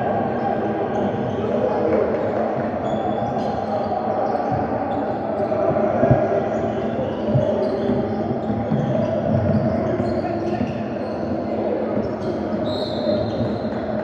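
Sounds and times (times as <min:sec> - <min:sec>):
hubbub of voices: 0:00.0 - 0:14.0
sneaker squeaks: 0:02.8 - 0:14.0.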